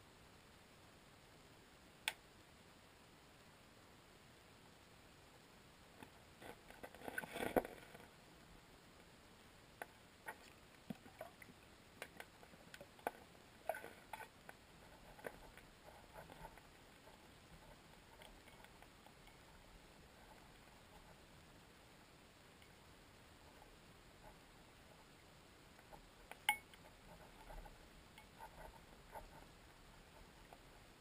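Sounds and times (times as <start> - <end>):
faint clicks and knocks: 6.0 - 8.2, 9.7 - 21.9, 22.5 - 31.0.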